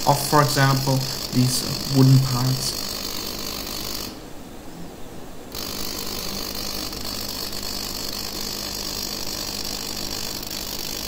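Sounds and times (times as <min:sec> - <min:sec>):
plasma nozzle sputtering hiss: 0:00.0 - 0:04.2, 0:05.6 - 0:11.0
low machine hum: 0:00.0 - 0:11.0.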